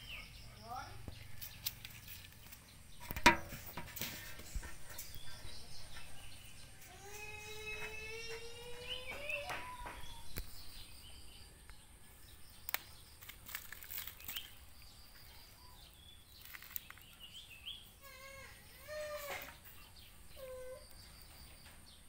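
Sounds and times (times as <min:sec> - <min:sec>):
drawn out rising animal call: 0:06.8 - 0:10.2.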